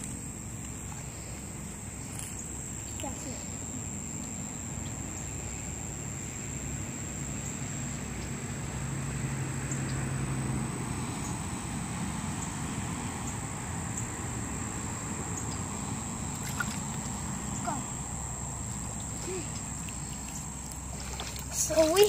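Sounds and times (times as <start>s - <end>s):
high thin insect drone: 0.0s - 22.0s
low engine-like tone: 0.0s - 22.0s
low hum: 0.0s - 22.0s.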